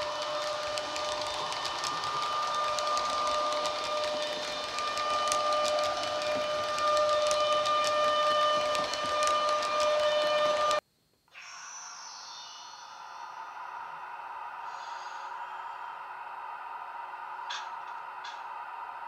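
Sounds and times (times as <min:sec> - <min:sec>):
model train wheels clicking: 0:00.0 - 0:10.8
high electric whine: 0:00.0 - 0:13.6.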